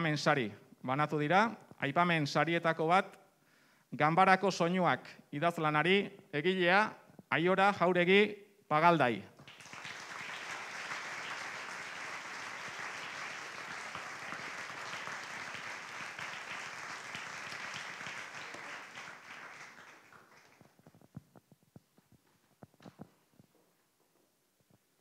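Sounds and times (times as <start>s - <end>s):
audience applauding: 9.4s - 20.9s.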